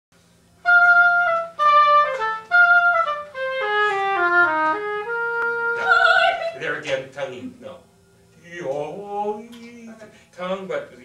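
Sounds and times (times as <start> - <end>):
oboe melody: 0.6 - 7.6.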